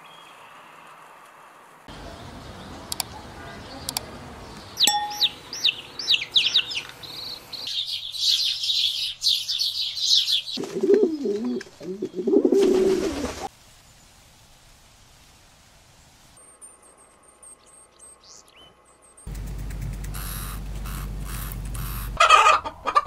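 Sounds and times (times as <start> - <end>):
sparrows chirping: 1.9 - 10.7, 16.6 - 22.2
lower wavering bird call: 4.8 - 6.8.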